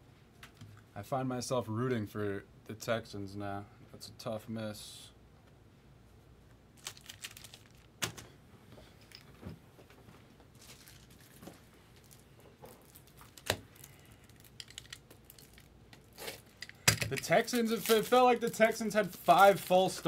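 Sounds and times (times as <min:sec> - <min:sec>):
card packaging crinkling: 0:06.8 - 0:08.3, 0:10.5 - 0:20.0.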